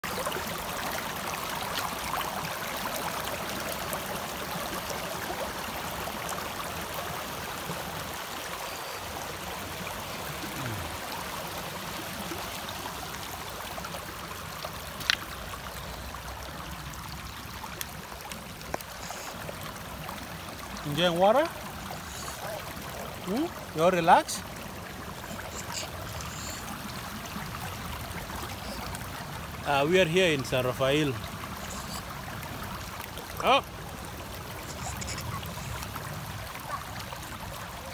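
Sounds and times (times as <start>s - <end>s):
stream running over rocks: 0.0s - 37.9s.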